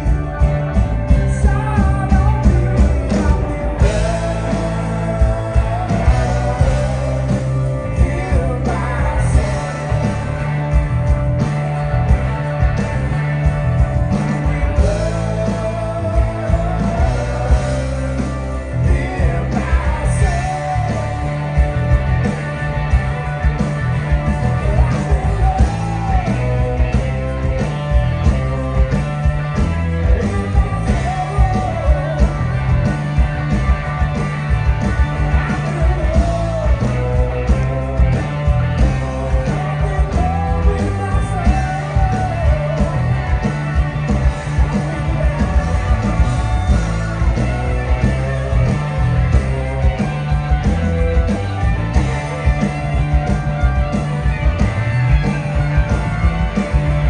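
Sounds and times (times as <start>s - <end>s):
blues-rock band playing: 0.0s - 57.0s
man singing: 1.1s - 10.4s, 14.3s - 21.7s, 24.4s - 27.2s, 29.9s - 33.0s, 35.4s - 43.6s, 44.5s - 46.2s.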